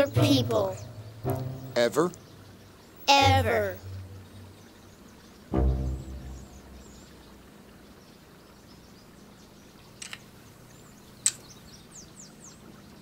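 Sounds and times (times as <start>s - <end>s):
faint bird chirps: 0.0s - 13.0s
bb gun clicks: 10.0s - 10.3s, 11.2s - 11.5s.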